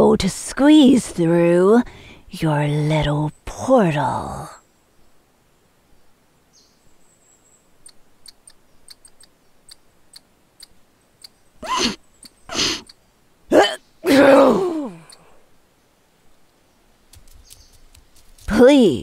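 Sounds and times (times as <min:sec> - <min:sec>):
squirrel ticks and chirps: 0:06.6 - 0:13.1, 0:14.9 - 0:15.4, 0:16.4 - 0:19.0
woman groan-like breath: 0:13.5 - 0:15.4.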